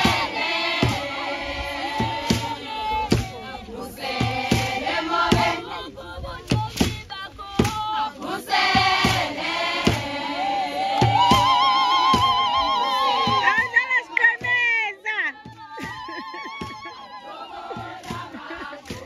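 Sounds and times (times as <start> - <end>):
sharp percussive strikes: 0.0 - 1.2, 1.9 - 3.4, 4.2 - 5.6, 8.7 - 10.2, 10.8 - 14.6
choir singing: 0.0 - 14.6, 15.3 - 19.0.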